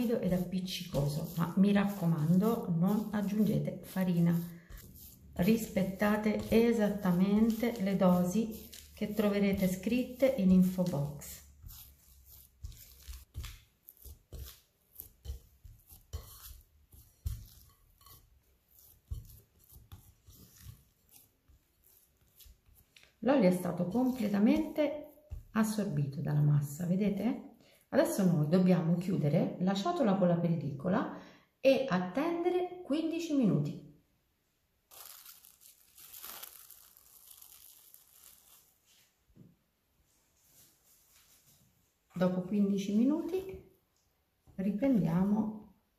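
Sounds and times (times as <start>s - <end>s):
dough slapping and squelching: 0.0s - 27.2s, 34.9s - 39.0s
cling film crinkling: 34.9s - 39.1s.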